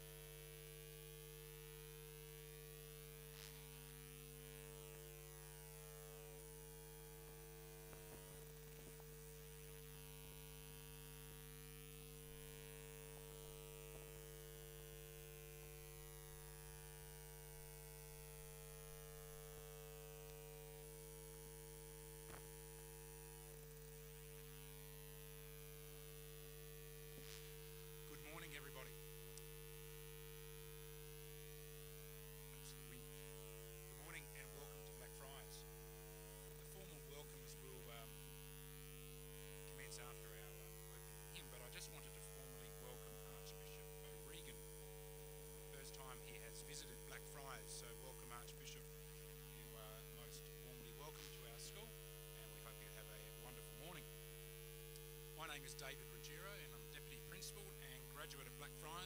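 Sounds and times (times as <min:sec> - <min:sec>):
low mains hum: 0:00.0 - 0:59.0
faint ticks: 0:29.3 - 0:29.6, 0:54.9 - 0:55.2.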